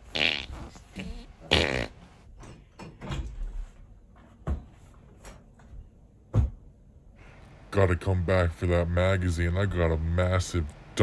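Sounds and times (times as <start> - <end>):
footsteps in a room: 3.3 - 6.8.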